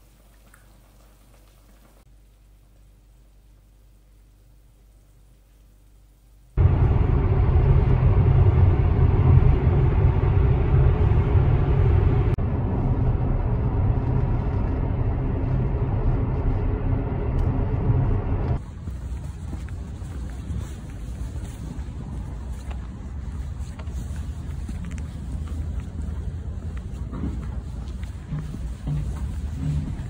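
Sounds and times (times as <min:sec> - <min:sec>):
car road and engine rumble: 0:06.6 - 0:30.0.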